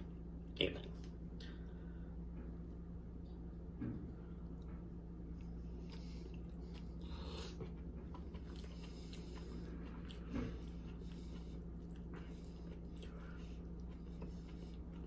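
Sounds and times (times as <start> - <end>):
low room hum: 0.0 - 15.0
person chewing: 5.3 - 15.0.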